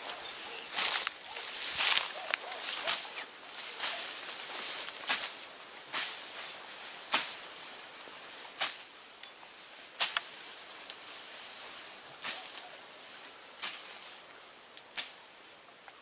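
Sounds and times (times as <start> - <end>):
footsteps swishing through grass: 0.0 - 8.9
faint steady hiss: 0.0 - 16.0.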